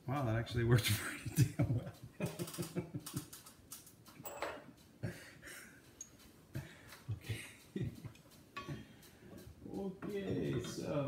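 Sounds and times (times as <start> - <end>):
ratchet wrench clicks and knocks: 2.3 - 5.0, 5.8 - 10.9.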